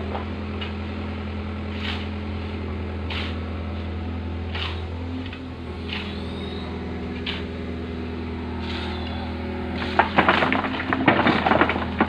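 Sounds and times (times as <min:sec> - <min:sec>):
machine humming: 0:02.4 - 0:12.0
sharp knocks and clatter: 0:09.8 - 0:12.0.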